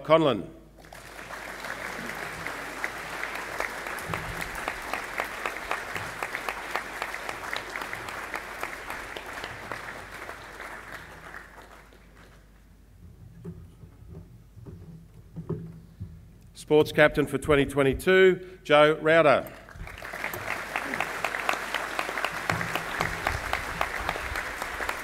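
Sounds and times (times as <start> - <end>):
audience applauding: 0.8 - 12.6, 19.7 - 25.0.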